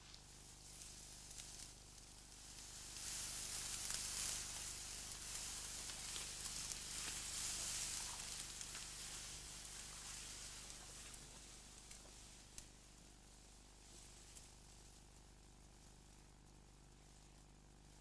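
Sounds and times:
tall grass rustling against clothing: 0.0 - 18.0
faint ticks: 10.6 - 12.8.

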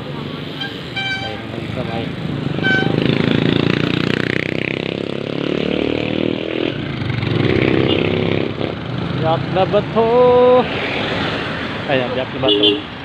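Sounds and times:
horn toot: 0.6 - 1.5, 2.6 - 3.2
vehicle engine revving: 1.5 - 11.5.

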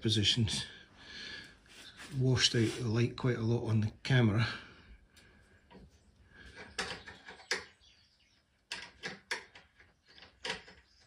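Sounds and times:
light clicks and knocks of screw: 5.2 - 7.7, 8.6 - 11.0.

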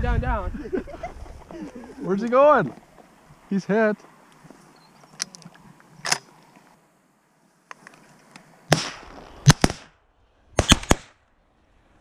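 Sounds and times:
shotgun shots: 8.7 - 10.0, 10.6 - 11.2.

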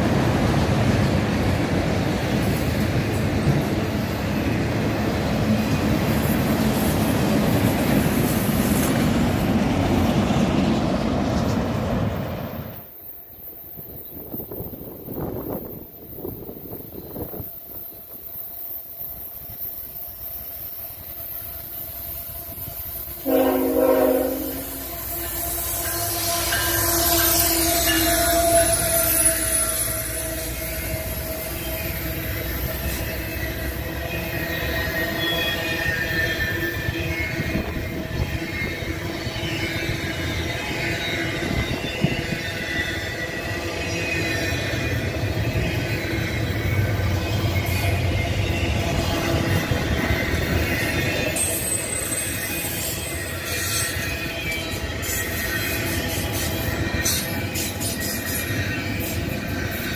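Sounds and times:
diesel locomotive rumbling: 0.0 - 59.9
locomotive air horn: 23.2 - 31.6.

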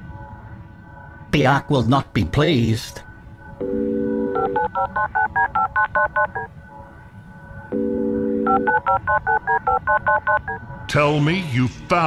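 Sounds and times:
telephone dial tone: 3.6 - 6.5, 7.7 - 10.6
touch-tone keypad beeps: 3.6 - 6.5, 7.8 - 10.6.

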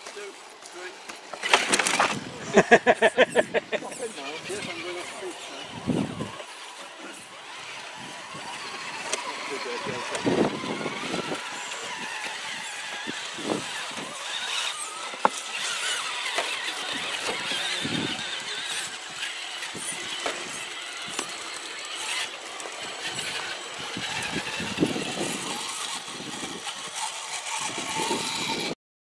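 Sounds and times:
clicks and knocks on stones: 0.0 - 2.2
small electric motors whining: 0.0 - 28.8.

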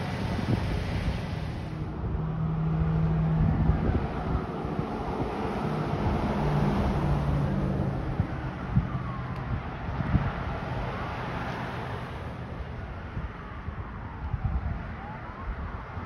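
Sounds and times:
cars passing: 0.0 - 16.0
wind buffeting microphone: 0.0 - 16.0
faint siren: 6.6 - 16.0.

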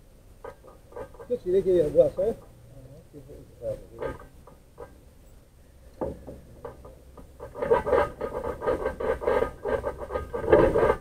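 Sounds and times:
light scrapes and taps: 0.4 - 2.6, 3.6 - 5.0.

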